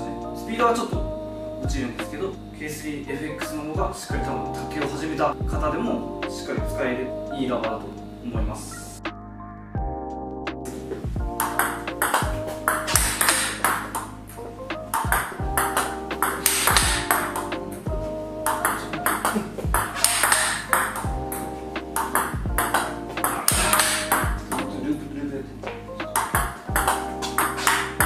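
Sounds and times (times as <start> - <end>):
background music: 0.0 - 28.0
ball bouncing on table: 11.4 - 14.0, 18.5 - 21.1, 25.6 - 27.8
table tennis ball hits: 11.4 - 14.1, 14.9 - 17.8, 18.5 - 24.8, 25.6 - 28.0.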